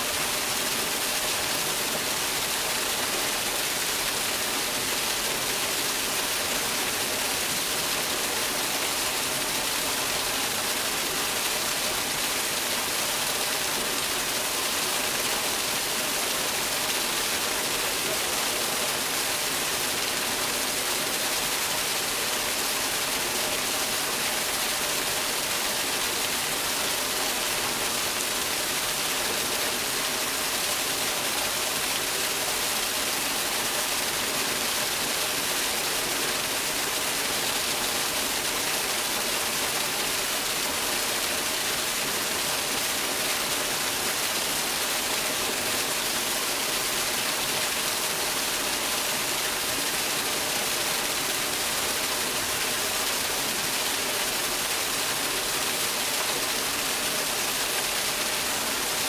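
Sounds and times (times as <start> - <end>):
water pouring down waterfall: 0.0 - 59.0.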